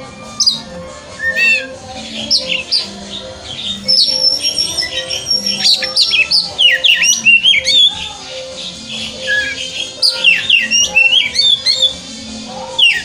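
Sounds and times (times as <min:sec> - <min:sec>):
bird singing whistled song: 0:00.3 - 0:13.0.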